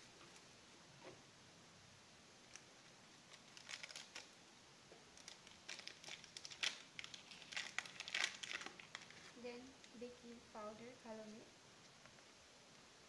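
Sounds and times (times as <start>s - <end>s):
plastic bag crinkling: 3.3s - 4.4s, 5.1s - 10.0s.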